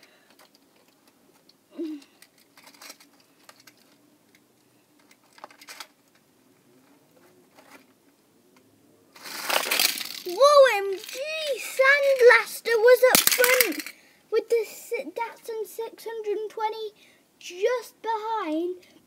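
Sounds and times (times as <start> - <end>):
toy cars clicking and tapping: 0.0 - 4.4, 5.0 - 6.0, 9.2 - 14.0.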